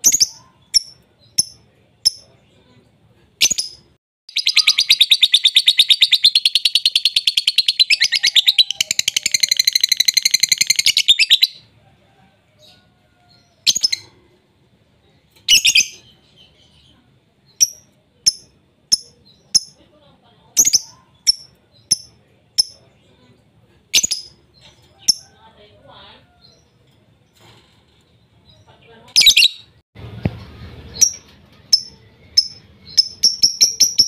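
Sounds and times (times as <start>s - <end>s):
bird chattering trill: 0.0s - 2.3s, 3.4s - 11.6s, 17.5s - 19.8s, 20.6s - 22.8s, 31.0s - 34.0s
sharp bird chirps: 0.0s - 2.3s, 3.4s - 11.6s.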